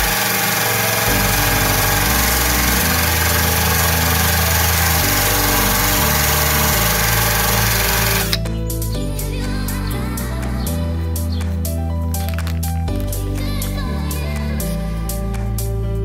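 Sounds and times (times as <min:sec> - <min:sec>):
rotary tool motor whine: 0:00.0 - 0:08.4.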